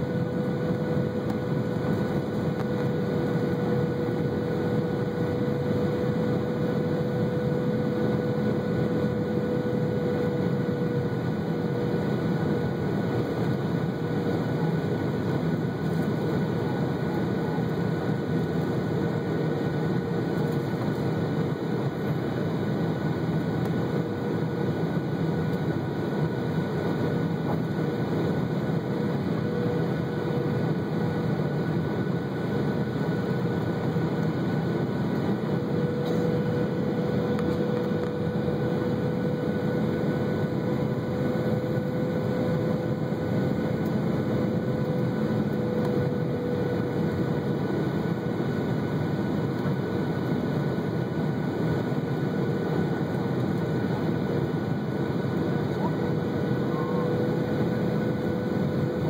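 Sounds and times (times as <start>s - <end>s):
jet engines running: 0.0s - 59.0s
steady cabin hum: 0.0s - 59.0s.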